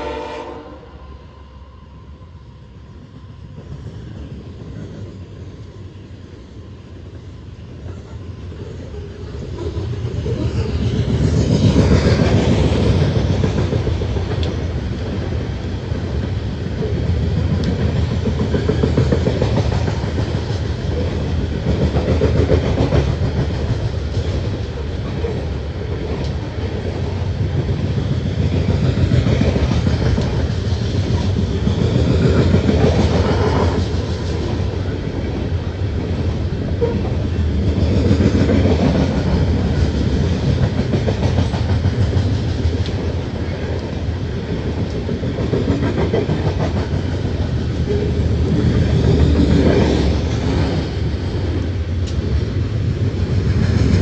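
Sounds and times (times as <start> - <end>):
train wheels clattering on rails: 7.7 - 54.0.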